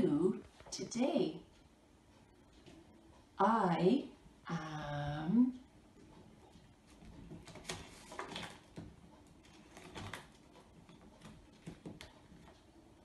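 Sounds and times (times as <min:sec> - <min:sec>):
paper pages flipping: 0:07.3 - 0:12.6.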